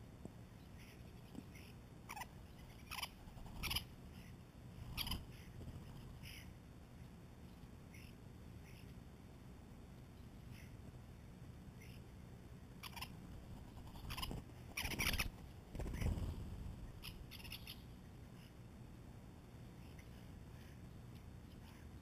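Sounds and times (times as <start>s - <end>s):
starling calls: 0.7s - 6.6s, 12.8s - 18.6s
wings fluttering: 1.0s - 3.9s, 4.8s - 6.4s, 12.8s - 17.8s.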